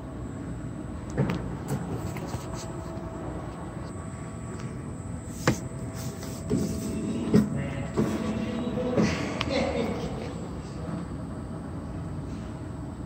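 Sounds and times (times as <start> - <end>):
book return machine humming: 1.7 - 10.2.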